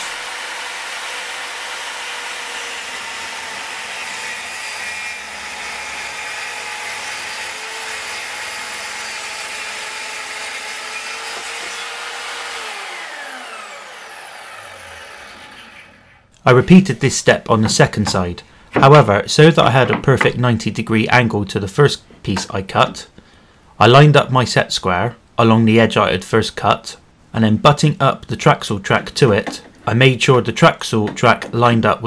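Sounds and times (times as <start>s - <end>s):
track saw cutting board: 0.0s - 17.2s
saw blade spinning down: 12.5s - 16.2s.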